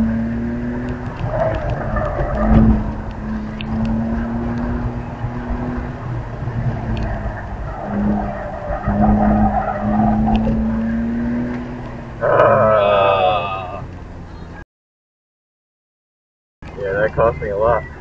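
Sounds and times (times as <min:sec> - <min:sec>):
car engine running hard: 0:00.0 - 0:14.6
tyres squealing: 0:12.2 - 0:13.9.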